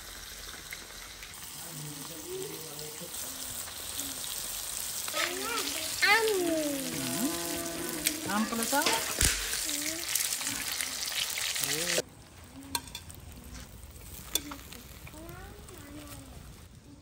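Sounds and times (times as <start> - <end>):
fish sizzling in hot oil: 0.0 - 16.7.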